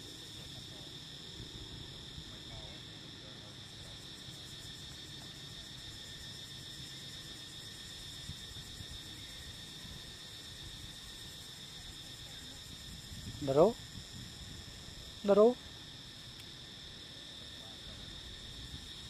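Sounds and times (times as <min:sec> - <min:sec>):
shrill insect chorus: 0:00.0 - 0:19.0.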